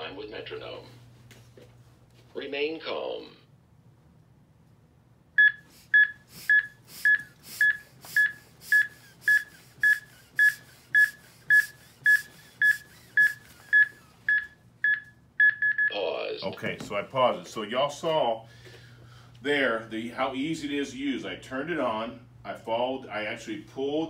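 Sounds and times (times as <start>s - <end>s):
soft hiss of chest compressions: 5.6s - 13.7s.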